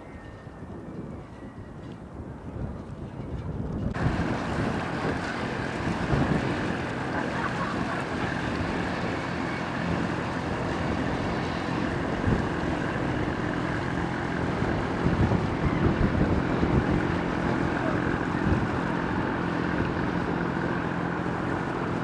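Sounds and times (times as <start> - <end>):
motorboat engine running: 0.0 - 22.0
wind buffeting microphone: 0.0 - 22.0.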